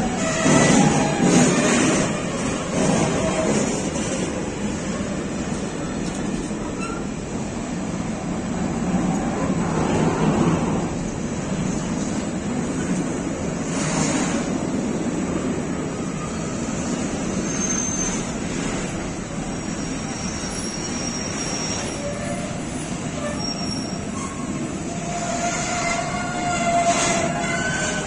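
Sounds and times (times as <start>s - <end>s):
train wheels rumbling on rail: 0.0s - 28.0s
metallic squeals: 19.6s - 28.0s.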